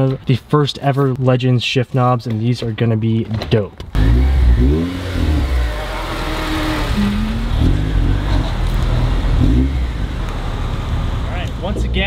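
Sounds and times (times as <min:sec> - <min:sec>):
car engine revving: 0:04.0 - 0:11.8.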